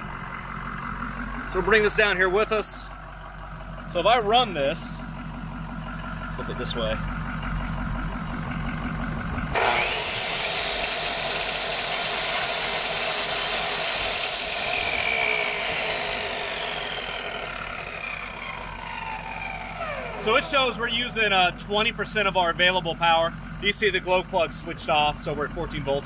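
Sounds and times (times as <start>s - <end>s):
diesel truck engine idling: 0.0s - 26.0s
chop saw whining: 9.3s - 22.4s.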